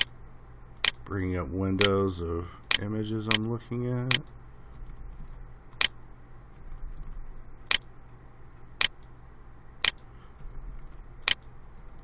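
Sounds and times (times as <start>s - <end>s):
faint low hum: 0.0s - 12.0s
computer mouse clicks: 0.8s - 1.0s, 4.1s - 7.9s, 9.8s - 12.0s.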